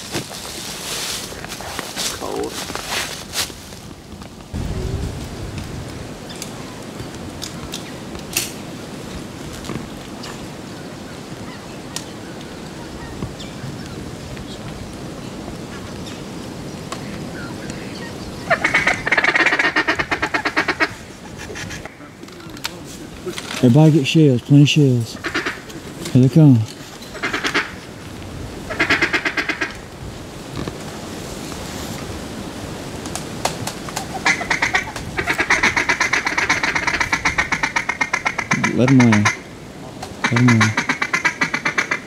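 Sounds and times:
duck call quacking: 18.5 - 21.0, 25.2 - 25.7, 27.2 - 27.8, 28.7 - 29.8, 34.2 - 39.4, 40.2 - 42.0.

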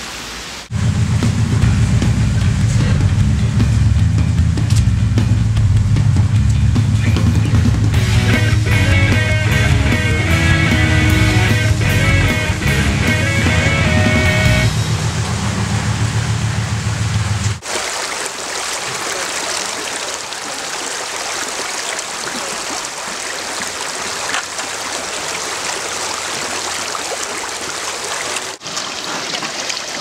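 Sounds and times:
music: 1.3 - 14.9
creek water flowing: 7.2 - 30.0.

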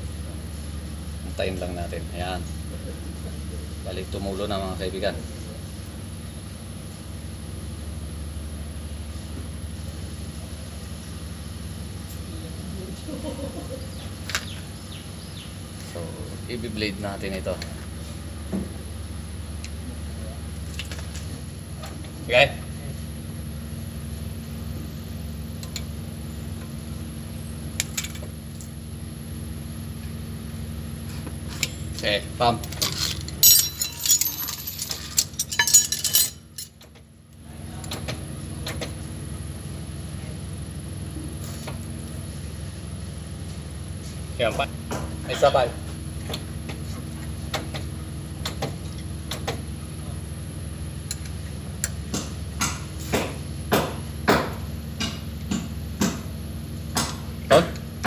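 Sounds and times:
steady low hum: 0.0 - 58.0
low hum: 32.8 - 37.6
metallic tool clinks: 33.3 - 36.7.

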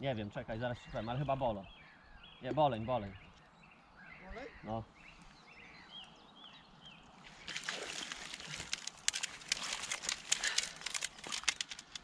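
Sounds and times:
water splashing: 7.2 - 12.0
clicks and rustles of landing net: 7.4 - 12.0.

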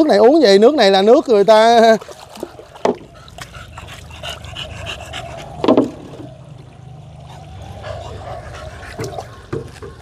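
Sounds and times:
dog panting: 2.6 - 6.0, 7.2 - 9.9.

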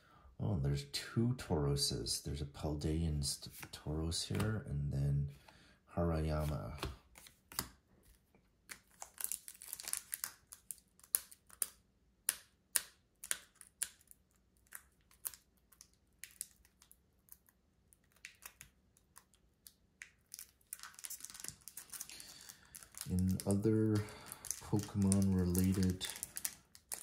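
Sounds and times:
trading cards clicking and rustling: 3.5 - 4.7, 6.3 - 11.8, 20.1 - 27.0.

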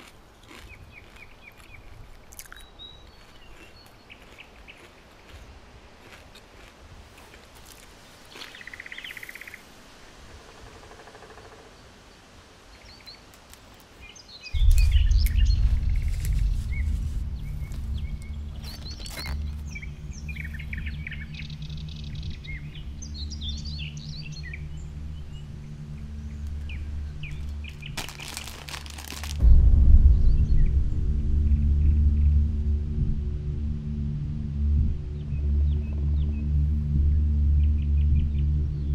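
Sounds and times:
birds chirping: 0.0 - 5.6, 7.6 - 9.7, 10.3 - 29.4
loud low droning rumble: 14.6 - 38.9.

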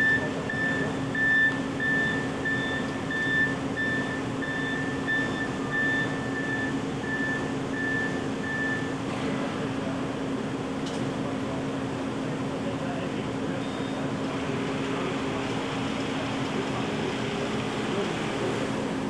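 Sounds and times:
short high warning beeps: 0.0 - 9.0, 13.6 - 14.0.

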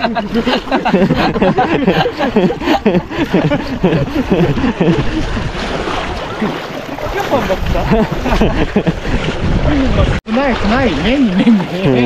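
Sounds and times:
people talking: 0.0 - 1.3, 7.0 - 8.2, 9.6 - 12.0.

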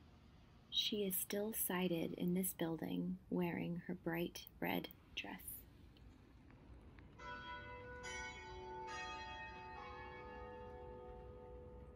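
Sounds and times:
church bells ringing: 7.2 - 11.9.

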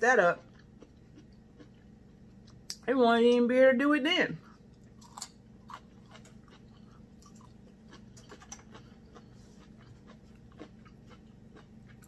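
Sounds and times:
steady low hum: 0.0 - 12.0
chewing and wet mouth clicks: 4.8 - 12.0.

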